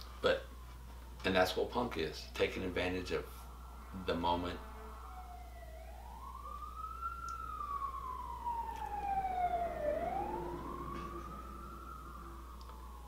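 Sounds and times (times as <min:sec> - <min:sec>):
emergency siren wailing: 0:00.2 - 0:13.0.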